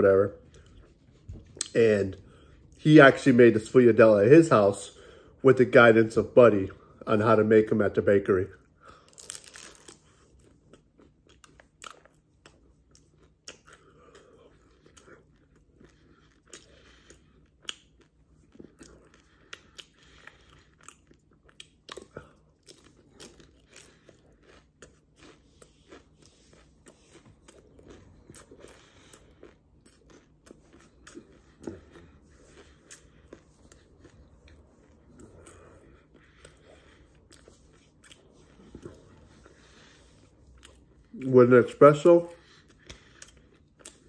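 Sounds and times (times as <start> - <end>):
crisp pastry chewing: 8.9 - 41.4.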